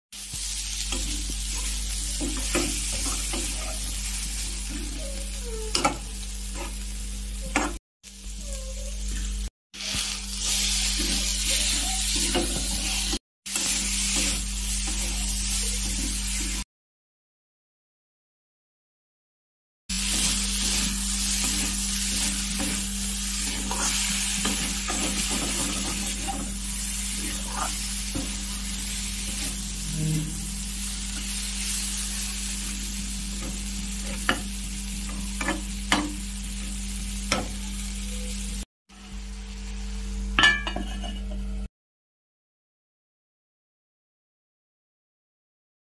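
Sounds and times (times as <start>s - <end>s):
vegetables sizzling in a pan: 0.2s - 16.6s, 19.9s - 41.6s
metal spatula scraping a pan: 0.9s - 6.8s, 9.8s - 16.4s, 20.0s - 32.0s, 40.4s - 41.5s.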